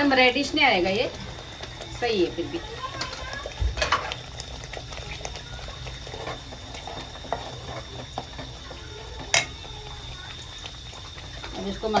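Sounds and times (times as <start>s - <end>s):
paste frying and spluttering: 0.0s - 12.0s
ladle stirring and scraping pot: 2.8s - 9.7s.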